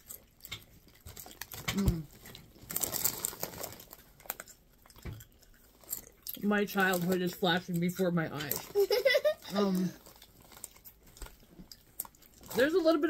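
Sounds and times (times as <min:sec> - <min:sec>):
chip crunching: 0:00.0 - 0:13.0
chip bag rustling: 0:01.0 - 0:04.6, 0:08.4 - 0:13.0.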